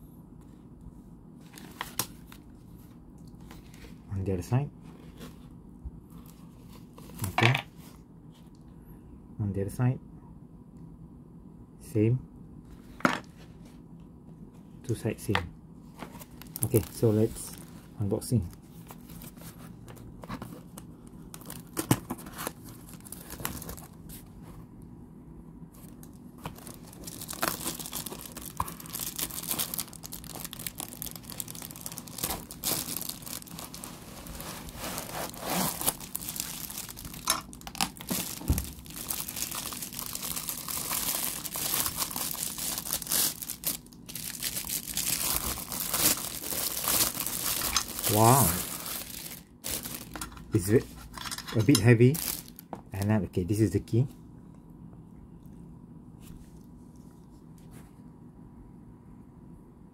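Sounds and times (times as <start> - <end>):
plastic wrap crinkling: 16.1 - 24.2, 25.8 - 50.8, 51.5 - 53.1
cardboard scraping: 32.2 - 36.1.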